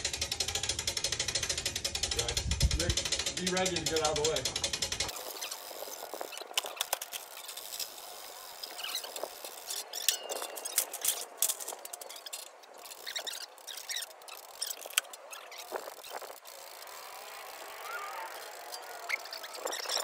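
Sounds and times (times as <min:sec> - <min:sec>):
winch clicking and clinking: 0:00.0 - 0:20.0
brief squeak: 0:19.1 - 0:20.0.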